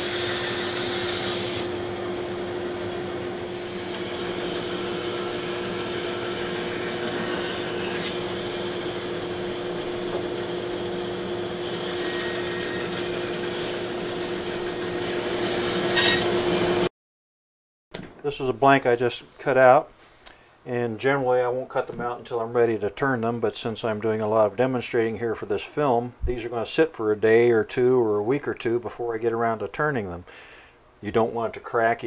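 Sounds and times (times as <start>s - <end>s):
bandsaw cutting wood: 0.0s - 16.9s.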